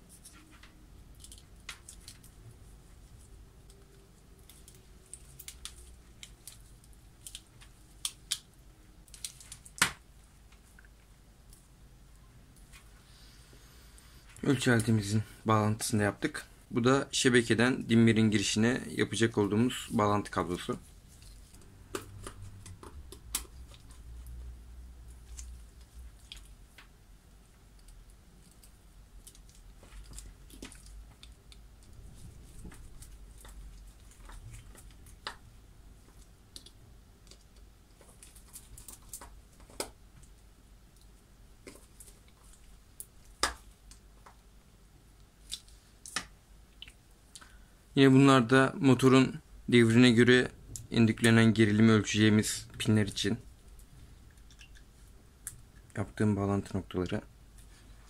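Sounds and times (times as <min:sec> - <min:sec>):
clicks and rubbing of wires: 0:00.0 - 0:02.4, 0:03.0 - 0:10.9, 0:25.1 - 0:26.9, 0:27.7 - 0:40.4.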